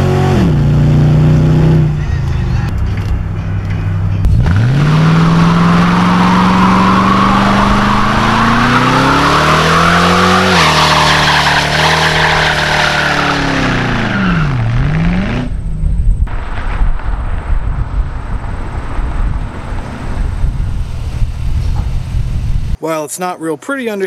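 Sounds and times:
car engine revving hard: 4.3s - 15.5s
tires squealing: 4.3s - 15.5s.

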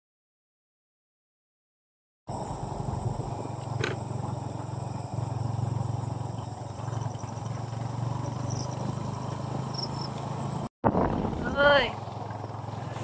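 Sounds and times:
crickets and night insects: 2.3s - 10.7s, 12.0s - 13.0s
pulsing chirp: 2.3s - 10.7s
steady low hum: 2.3s - 11.2s.

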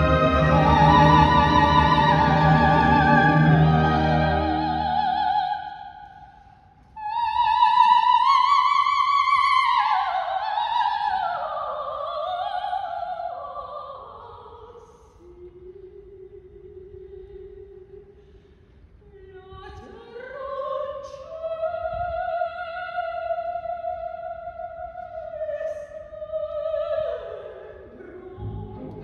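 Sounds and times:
orchestra playing: 0.0s - 5.4s, 28.4s - 29.0s
operatic soprano singing: 0.0s - 6.4s, 7.0s - 18.0s, 19.2s - 29.0s.

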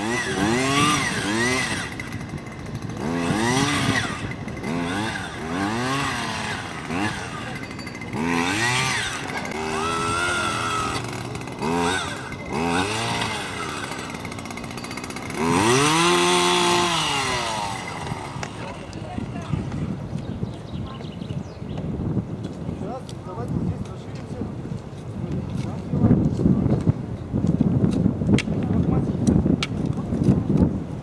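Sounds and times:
earth auger engine revving: 0.0s - 20.0s.

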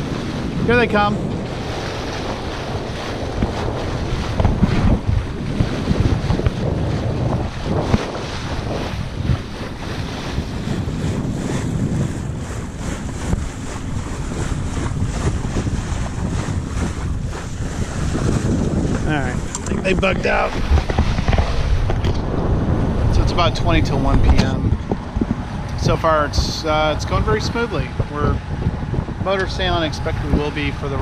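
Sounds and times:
water rushing and splashing past bow: 0.0s - 31.0s
wind buffeting microphone: 0.0s - 31.0s.

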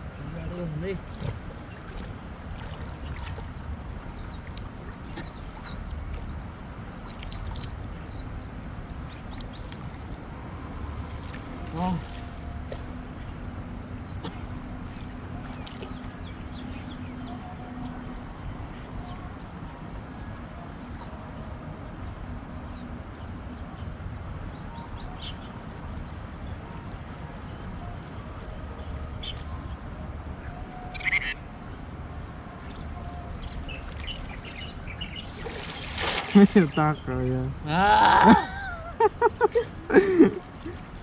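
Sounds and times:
birds calling: 0.0s - 10.3s, 28.8s - 31.5s, 32.7s - 41.0s.

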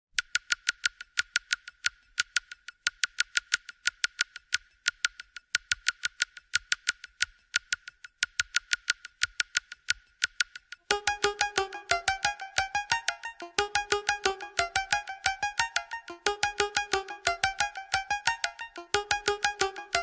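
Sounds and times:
rapid sharp clicking: 0.1s - 20.0s.

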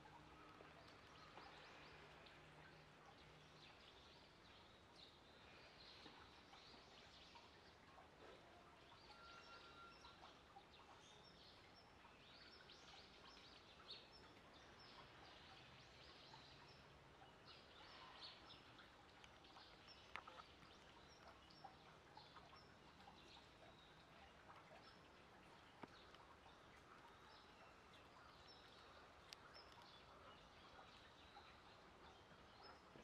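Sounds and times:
small birds chirping: 0.0s - 33.0s
soft clicks: 29.2s - 30.0s.

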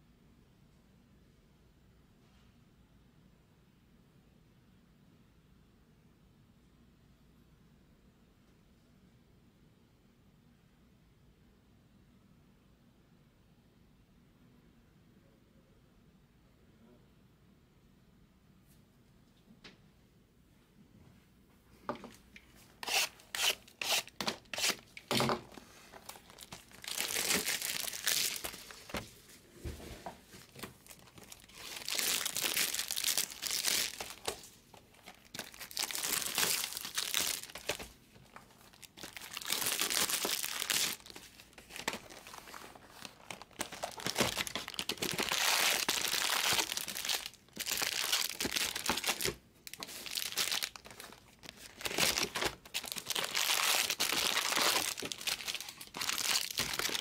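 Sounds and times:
plastic wrapping tearing and crinkling: 22.8s - 29.0s, 30.4s - 57.0s
foil packs rustling: 23.0s - 29.1s, 30.3s - 57.0s.

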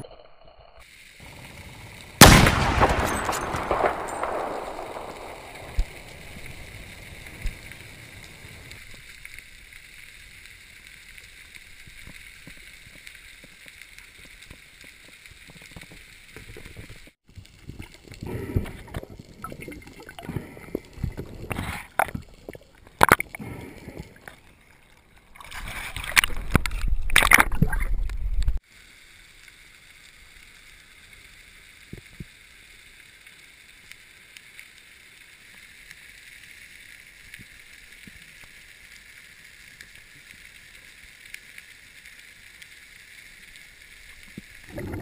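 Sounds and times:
low underwater hiss: 0.6s - 26.8s, 28.0s - 45.0s
bubbling and splashing water: 11.6s - 28.6s, 43.4s - 45.0s.

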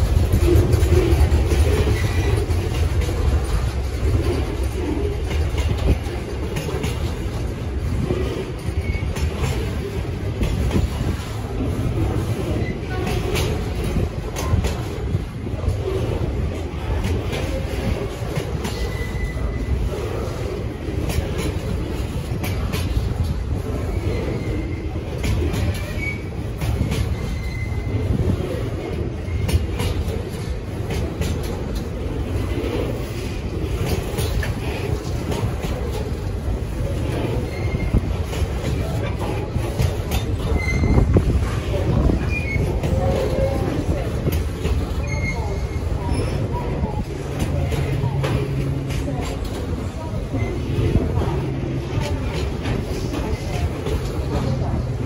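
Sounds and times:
train wheels rumbling on rail: 0.0s - 55.0s
wheels clacking and knocking: 0.0s - 55.0s
faint squeaks: 17.4s - 20.4s, 22.4s - 30.5s, 36.7s - 44.0s, 44.7s - 54.5s.

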